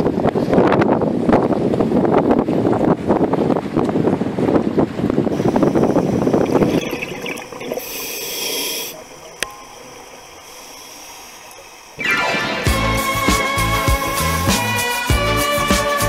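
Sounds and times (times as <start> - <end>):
wind buffeting microphone: 0.0 - 8.0
underwater hiss: 5.3 - 9.4, 10.0 - 12.0.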